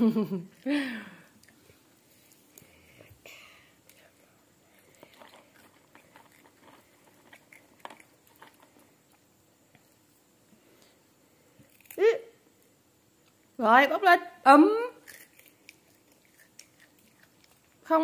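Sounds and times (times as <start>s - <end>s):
crunchy snack chewing: 4.7s - 9.2s, 11.6s - 12.0s, 15.0s - 17.8s.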